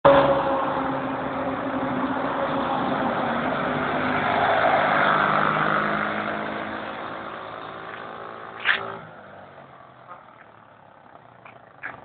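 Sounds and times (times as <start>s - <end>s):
quad bike engine running hard: 5.1s - 12.0s
sharp snap: 8.6s - 8.9s.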